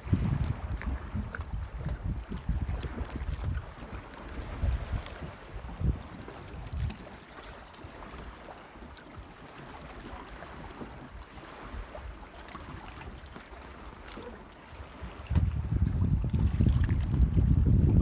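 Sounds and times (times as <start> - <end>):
wind buffeting microphone: 0.0 - 7.2, 14.2 - 18.0
small waves lapping against hull: 0.0 - 18.0.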